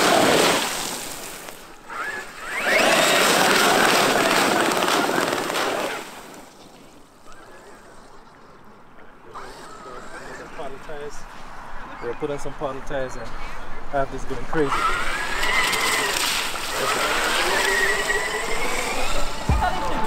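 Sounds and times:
tyres throwing water spray: 0.0s - 7.1s, 14.7s - 20.0s
electric motor whine: 1.8s - 6.0s, 14.7s - 20.0s.

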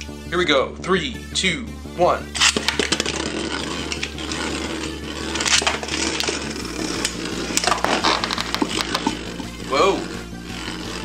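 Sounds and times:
spinning tops whirring: 2.3s - 11.0s
plastic clacks of colliding tops: 2.4s - 3.3s, 7.0s - 9.5s.

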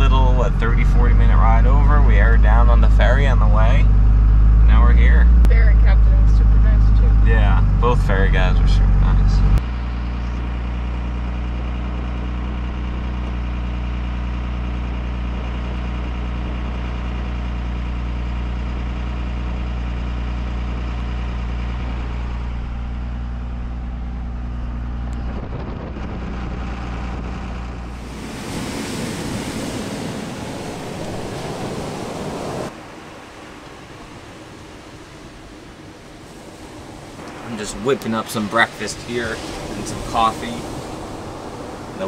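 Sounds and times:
truck engine running: 0.0s - 42.0s
wind: 0.0s - 42.0s
breaking surf: 27.9s - 42.0s.

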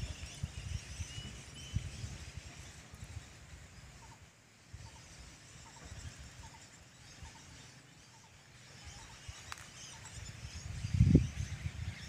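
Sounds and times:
wind rumble on microphone: 0.0s - 4.1s, 8.8s - 12.0s
birds chirping: 0.0s - 12.0s.

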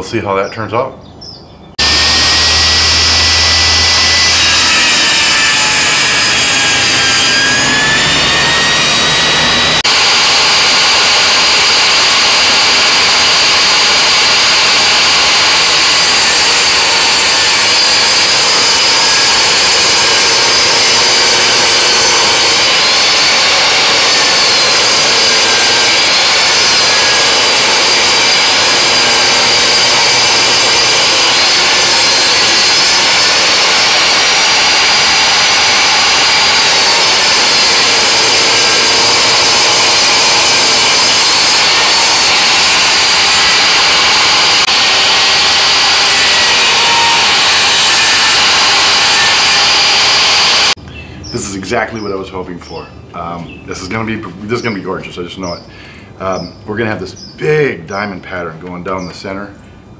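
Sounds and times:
table saw whining: 1.8s - 50.8s.

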